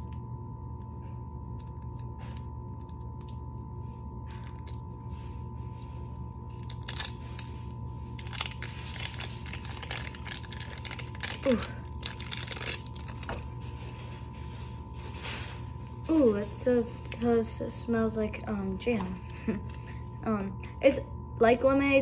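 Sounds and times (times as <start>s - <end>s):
steady electrical hum: 0.0s - 22.0s
plastic bag crinkling and tearing: 4.2s - 13.9s.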